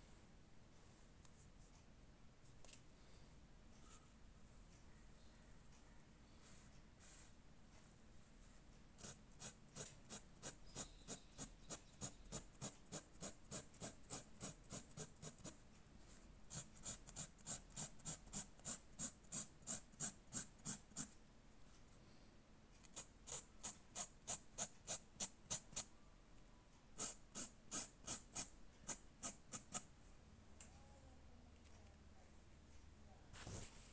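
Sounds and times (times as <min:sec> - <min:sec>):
marker rubbing on fabric: 0:09.0 - 0:15.6, 0:16.5 - 0:21.2, 0:22.9 - 0:25.9, 0:27.0 - 0:29.9.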